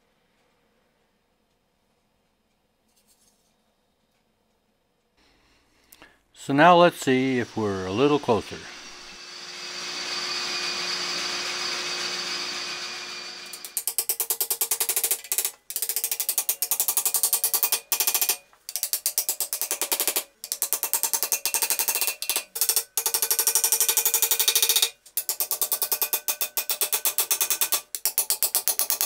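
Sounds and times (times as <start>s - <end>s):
ratchet clicking rapidly: 13.4s - 29.0s.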